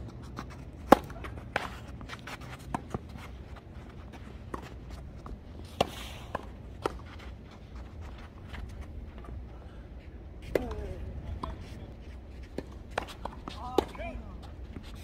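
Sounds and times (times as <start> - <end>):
tennis balls struck by rackets: 0.7 - 3.1
tennis balls bouncing on court: 0.7 - 3.2.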